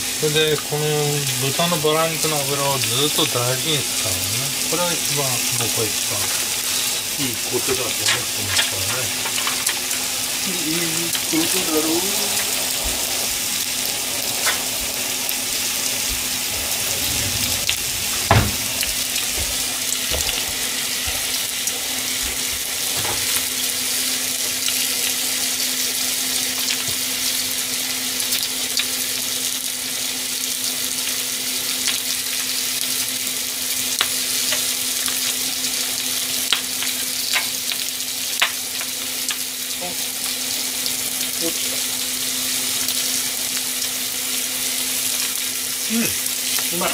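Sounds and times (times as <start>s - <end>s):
meat sizzling in a frying pan: 0.0s - 46.9s
low hum: 12.2s - 20.0s
knock: 18.2s - 18.7s.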